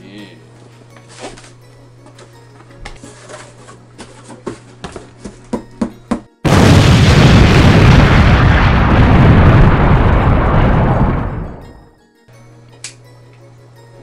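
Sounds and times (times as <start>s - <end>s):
loud rumbling explosion: 6.5s - 11.6s.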